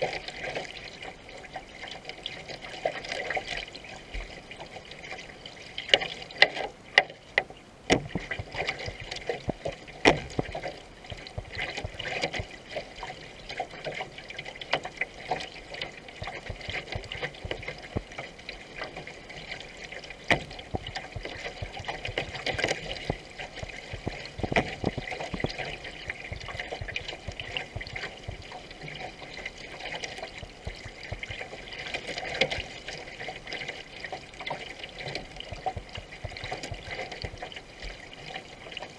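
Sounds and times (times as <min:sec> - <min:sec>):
water splashing around canoe: 0:00.0 - 0:38.9
paddle knocks: 0:05.9 - 0:13.1, 0:20.2 - 0:32.8.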